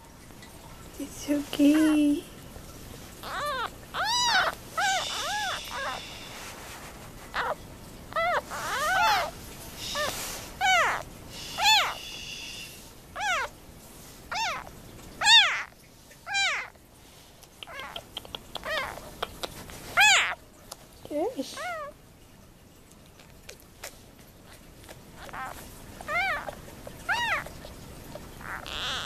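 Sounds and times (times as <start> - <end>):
newborn kittens crying: 3.1 - 6.5, 7.3 - 13.6, 14.3 - 16.8, 17.6 - 19.2, 19.9 - 20.4, 21.5 - 22.0, 24.5 - 29.0.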